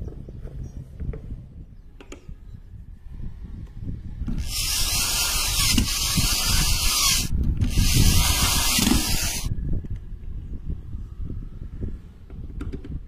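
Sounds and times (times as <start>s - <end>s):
cordless drill whirring: 4.3s - 9.5s.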